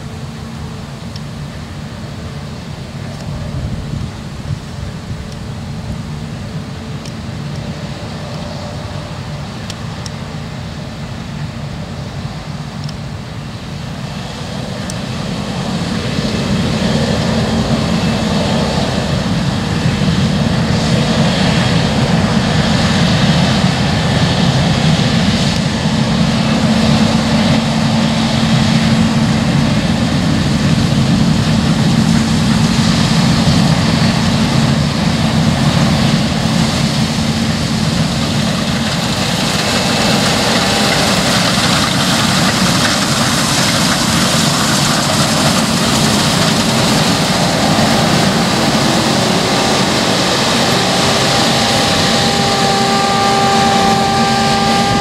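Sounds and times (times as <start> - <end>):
combine harvester droning: 0.0 - 55.0.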